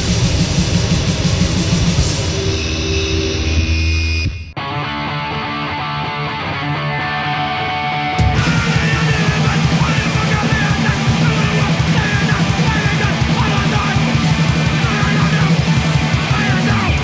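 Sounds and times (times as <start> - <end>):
very fast drumming: 0.0 - 2.5, 8.2 - 17.0
heavily distorted guitar: 0.0 - 17.0
shouted vocals: 8.3 - 17.0.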